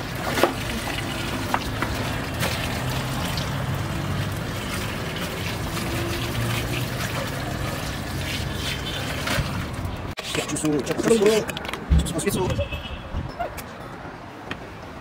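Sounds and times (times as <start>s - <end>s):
water splashing over hands: 0.0s - 10.0s.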